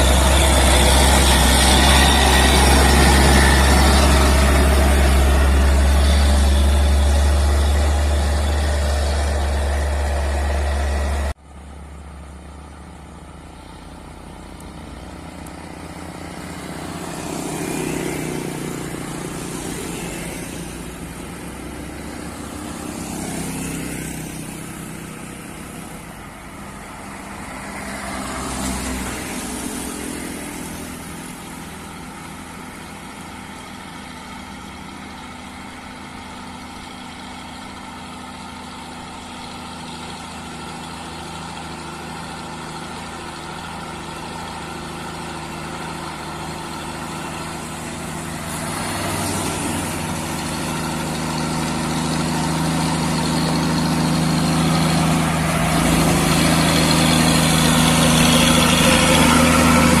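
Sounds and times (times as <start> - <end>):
truck diesel engine: 0.0 - 60.0.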